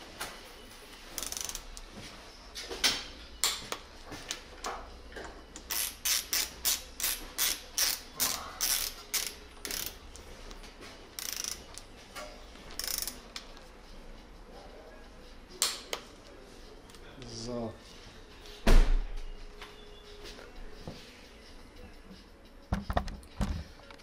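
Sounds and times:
torque wrench ratchet clicking: 1.2s - 1.6s, 5.7s - 10.0s, 11.2s - 11.8s, 12.8s - 13.2s.

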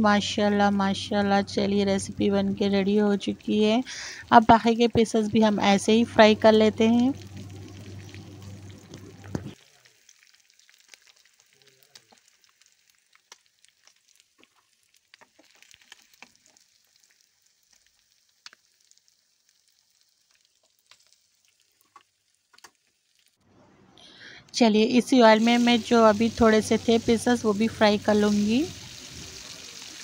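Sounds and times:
fish sizzling in oil: 0.6s - 23.4s, 25.0s - 30.0s
oil crackles: 2.2s - 23.4s.

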